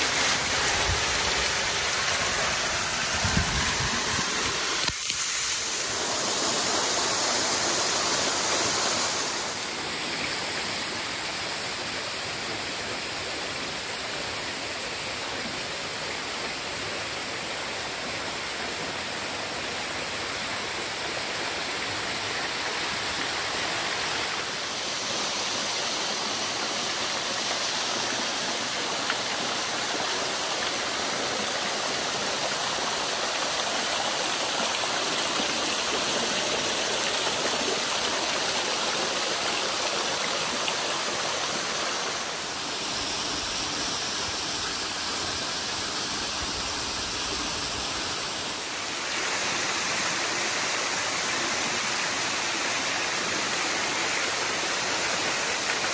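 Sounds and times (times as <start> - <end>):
waterfall splashing into pool: 0.0 - 55.9.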